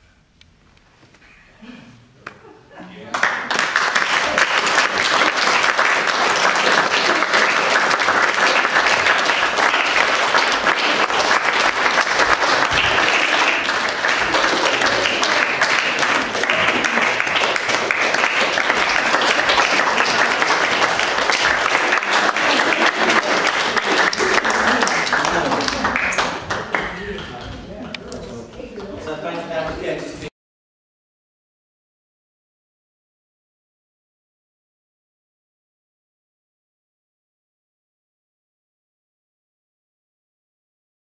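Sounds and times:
audience applauding: 3.1 - 28.4.

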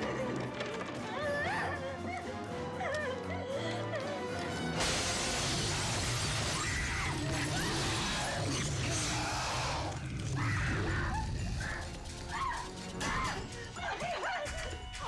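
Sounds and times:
film music: 0.0 - 15.0.

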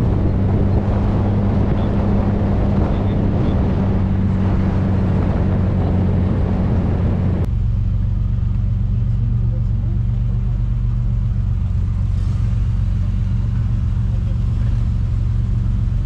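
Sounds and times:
tyre and wind noise: 0.0 - 7.6
car engine idling: 0.0 - 16.0
car engine running: 0.0 - 16.0.

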